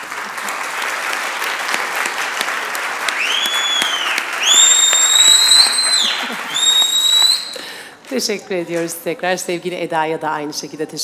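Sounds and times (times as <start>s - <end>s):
audience applause: 0.0s - 7.8s
piercing whistles from crowd: 3.2s - 7.6s.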